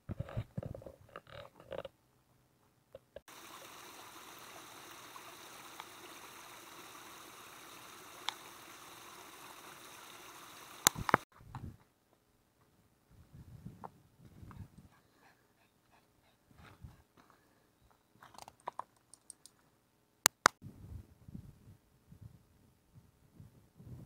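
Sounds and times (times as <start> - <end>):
stream running: 3.3 - 11.3.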